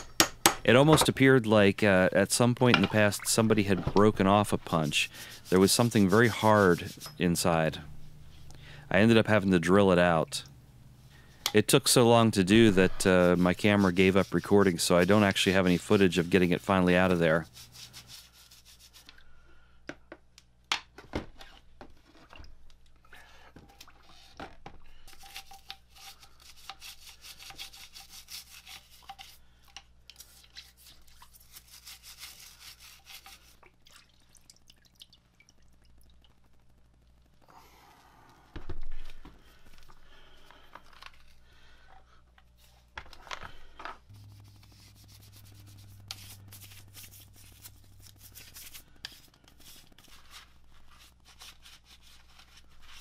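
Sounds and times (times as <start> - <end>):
bristle brush scrubbing metal: 2.8 - 8.4, 11.9 - 19.1, 25.1 - 33.6, 44.1 - 53.0.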